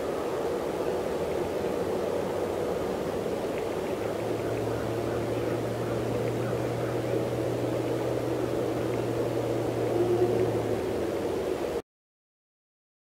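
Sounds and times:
constant hum: 0.0s - 11.8s
steady low drone: 0.0s - 11.8s
faint higher tone: 4.2s - 11.4s.

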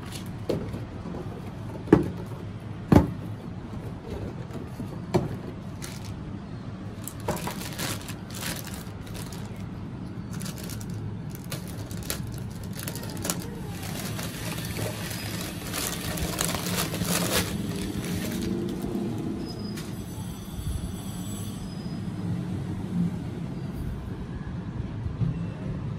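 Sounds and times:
low background hum: 0.0s - 19.9s
plastic bag crinkling: 5.6s - 6.2s, 7.0s - 19.4s.

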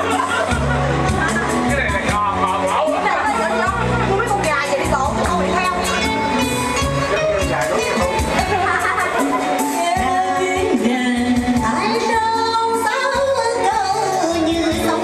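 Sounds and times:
backing music: 0.0s - 15.0s
woman singing into microphone: 8.4s - 15.0s.

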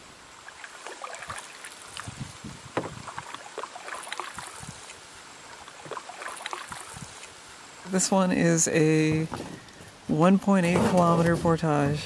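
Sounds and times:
paddle splashing water: 0.0s - 7.9s
low knocks on canoe: 2.1s - 3.2s.

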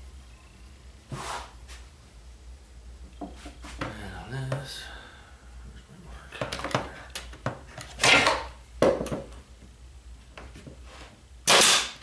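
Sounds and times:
nail gun shots with air rush: 8.0s - 8.5s, 11.4s - 12.0s.

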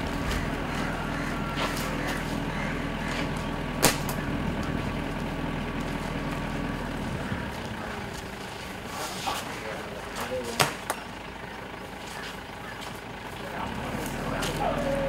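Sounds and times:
vehicle engine idling: 0.0s - 15.0s
sharp crack: 3.8s - 4.3s, 10.5s - 11.0s.

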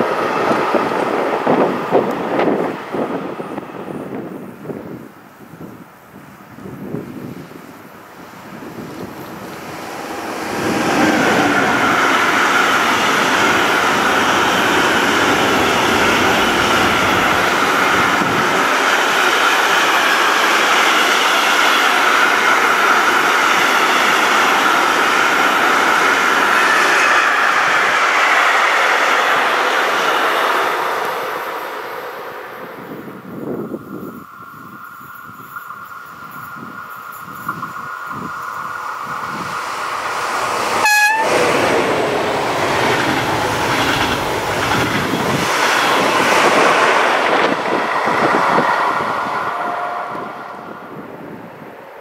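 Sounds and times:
freight train wheels clattering: 35.4s - 49.4s.

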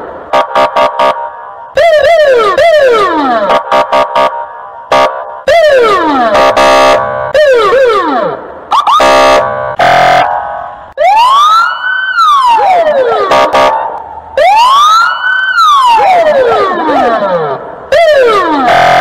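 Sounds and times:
police siren yelping: 0.4s - 19.0s
siren wailing: 0.4s - 19.0s
buzzy horn blasts: 3.5s - 5.3s, 6.3s - 7.3s, 9.0s - 10.9s, 13.3s - 14.0s.

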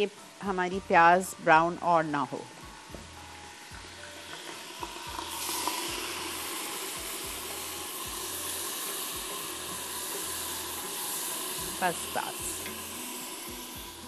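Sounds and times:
onions sizzling in oil: 0.0s - 14.0s
steamy hiss: 2.6s - 14.0s.

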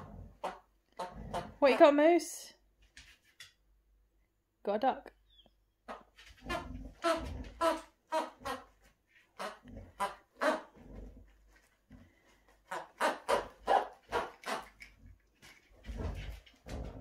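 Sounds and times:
dog barking and grunting: 0.0s - 2.0s, 5.9s - 8.7s, 9.4s - 11.3s, 12.0s - 15.0s.

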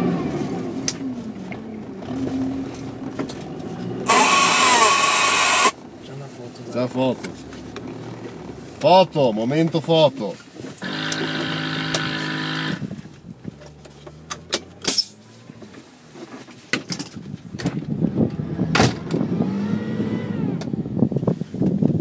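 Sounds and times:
steady held tone: 4.1s - 5.8s.

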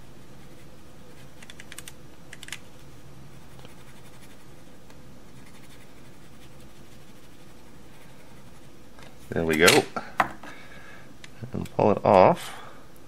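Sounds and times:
low steady hum: 0.0s - 13.0s
small scratching clicks: 1.2s - 2.9s.

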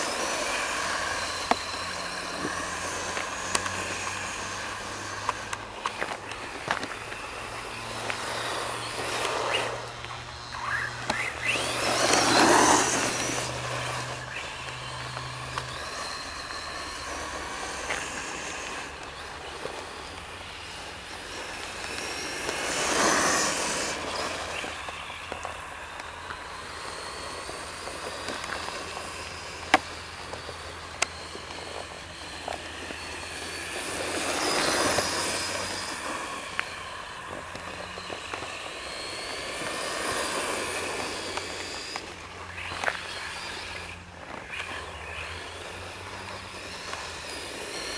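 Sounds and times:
rc car motor whining: 0.0s - 47.9s
sharp clicks: 7.9s - 19.2s.

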